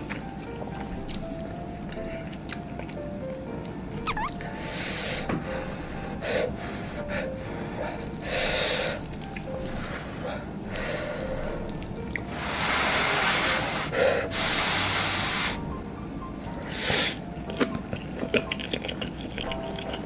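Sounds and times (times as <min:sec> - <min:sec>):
noisy breaths through nose: 0:04.5 - 0:11.7, 0:12.3 - 0:15.7, 0:16.6 - 0:17.3.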